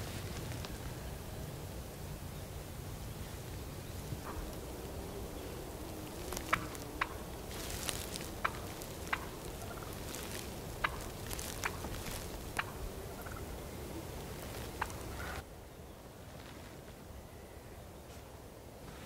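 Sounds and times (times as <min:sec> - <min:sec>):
wild turkey clucking: 0:06.0 - 0:15.4.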